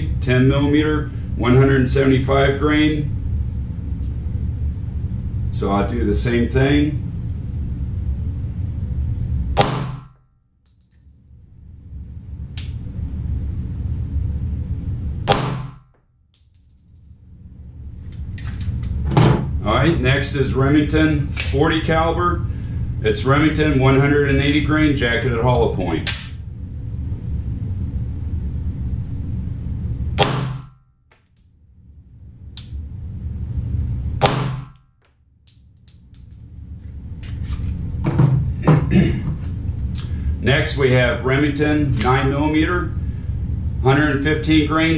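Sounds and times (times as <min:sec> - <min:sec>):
low background hum: 0:00.0 - 0:44.9
low steady rumble: 0:00.0 - 0:44.9
pistol shots: 0:09.6 - 0:10.1, 0:15.3 - 0:15.8, 0:34.2 - 0:34.8
pistol shot ringing in a room: 0:09.6 - 0:10.2, 0:15.3 - 0:16.5, 0:30.2 - 0:31.4, 0:34.2 - 0:36.3.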